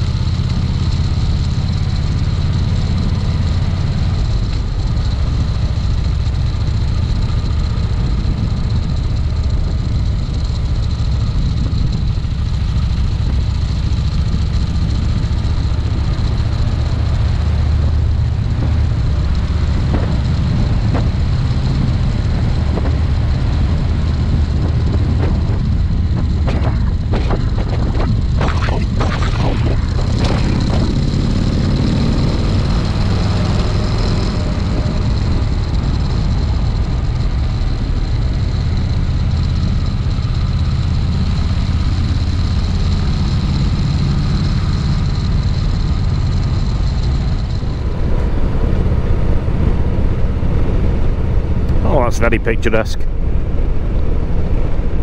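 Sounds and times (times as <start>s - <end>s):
motorcycle engine running: 0.0s - 51.8s
engine crackles: 0.0s - 55.0s
wind rush: 18.5s - 32.7s.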